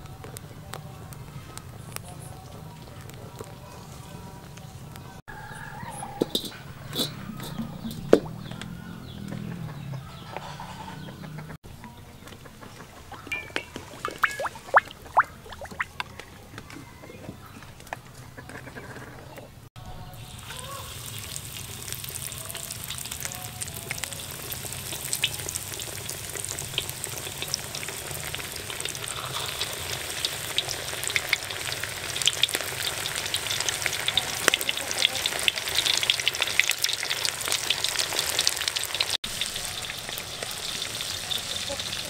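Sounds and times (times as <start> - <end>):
food deep-frying in hot oil: 20.1 - 42.0.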